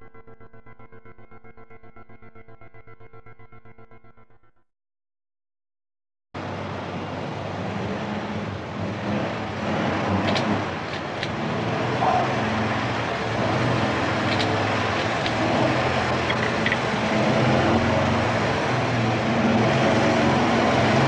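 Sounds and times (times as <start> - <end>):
street traffic: 6.4 - 21.0
vehicle engine running: 6.4 - 21.0.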